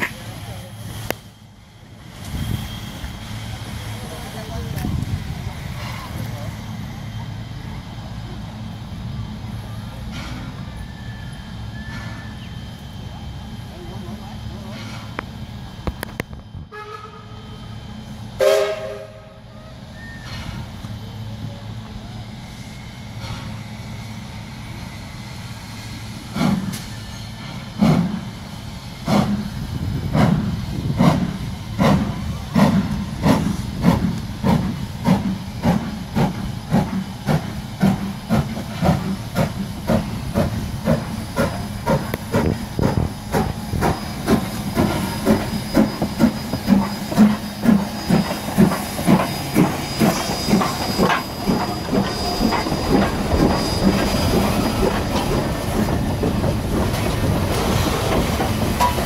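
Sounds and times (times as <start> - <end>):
steam hissing: 0.0 - 15.8, 17.2 - 59.0
steam locomotive exhaust chuffs: 0.0 - 59.0
steam whistle blast: 16.7 - 17.6, 18.4 - 20.4.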